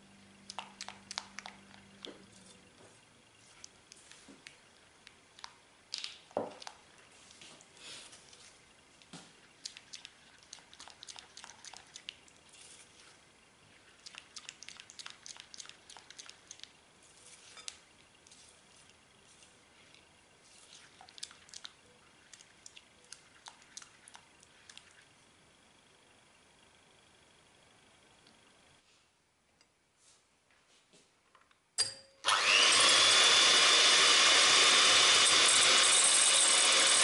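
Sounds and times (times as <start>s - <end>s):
spatula stirring thick chocolate: 9.4s - 24.9s.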